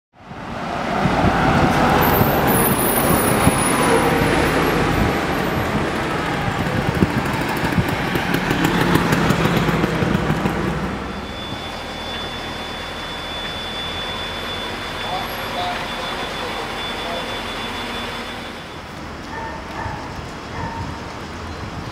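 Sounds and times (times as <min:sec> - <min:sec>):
bus passing: 0:00.2 - 0:21.9
road vehicles passing: 0:00.2 - 0:21.9
thin steady high tone: 0:11.1 - 0:21.0.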